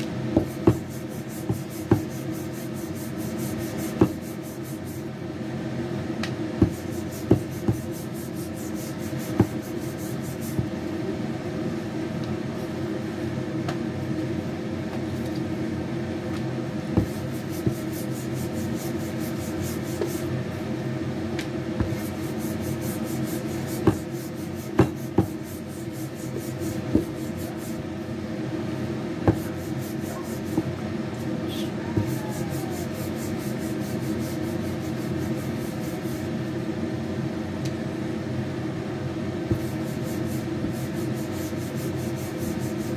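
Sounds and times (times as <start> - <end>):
rolling pin rubbing on dough: 0.4 - 5.1, 6.6 - 10.8, 17.0 - 20.3, 21.8 - 27.9, 29.2 - 31.4, 32.0 - 36.5, 39.5 - 42.9.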